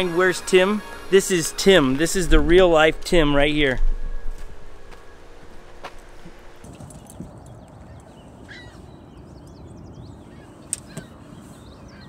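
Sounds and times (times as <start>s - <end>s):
small birds chirping: 6.6s - 12.0s.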